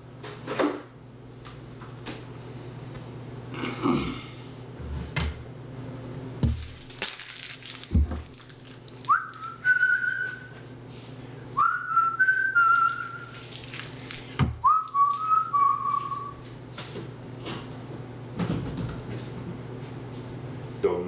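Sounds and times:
person whistling: 9.1 - 10.6, 11.6 - 13.3, 14.6 - 16.4.

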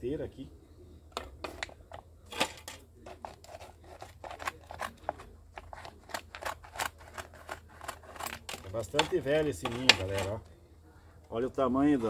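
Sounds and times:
scissors cutting plastic bottle: 2.4 - 10.3.

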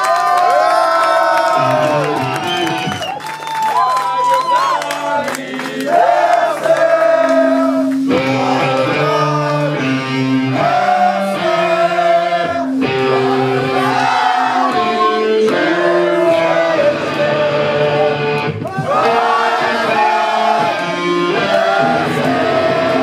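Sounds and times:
person singing: 6.7 - 23.0
live rock band playing: 6.9 - 23.0.

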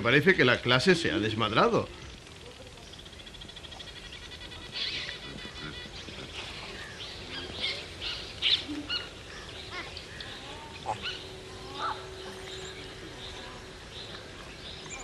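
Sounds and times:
monkeys squealing and chirping: 3.6 - 13.6.

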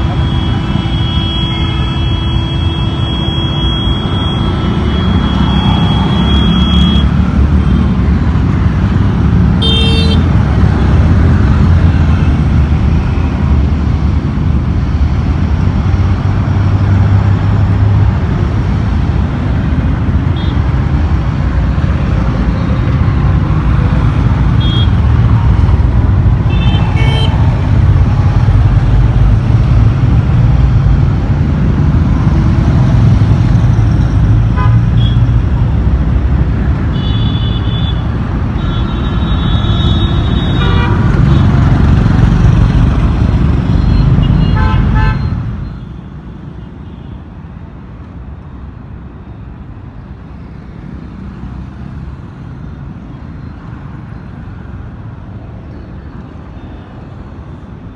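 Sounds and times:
vehicle horns tooting: 0.0 - 7.2, 9.6 - 10.2, 24.6 - 25.0, 26.5 - 27.4, 36.9 - 41.6, 43.8 - 46.0
road traffic rumble: 0.0 - 57.9.

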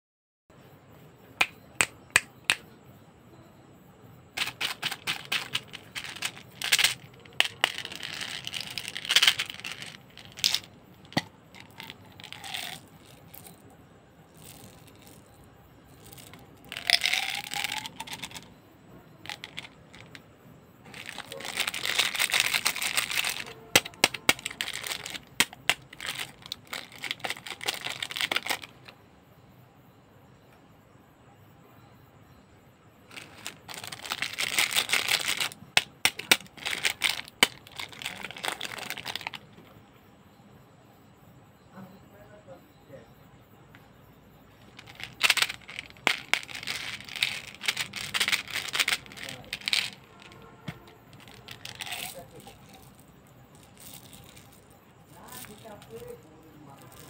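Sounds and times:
plastic wrappers crinkling and tearing: 4.4 - 13.5, 20.9 - 28.7, 33.1 - 39.4, 44.8 - 50.4, 51.1 - 54.6, 55.2 - 56.1
candies rattling into a hand: 4.4 - 13.7, 14.3 - 15.3, 15.9 - 18.5, 19.2 - 20.2, 20.9 - 28.9, 33.1 - 39.4, 44.6 - 57.0.

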